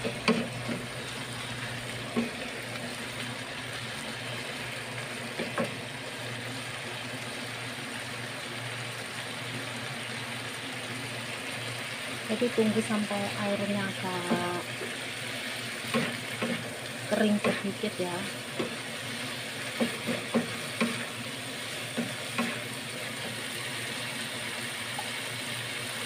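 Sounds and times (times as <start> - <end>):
stir-fry sizzling in a frying pan: 0.0 - 26.0.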